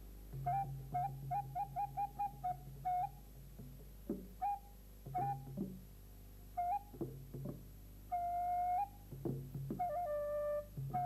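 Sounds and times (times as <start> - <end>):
flute-like piping notes: 0.4 - 3.2, 4.4 - 5.6, 6.6 - 7.0, 8.1 - 9.0, 9.8 - 11.0.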